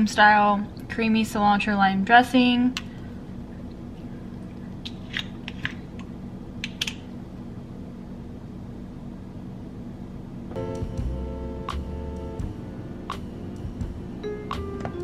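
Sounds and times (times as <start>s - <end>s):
low hum: 10.5s - 15.0s
music: 10.5s - 15.0s.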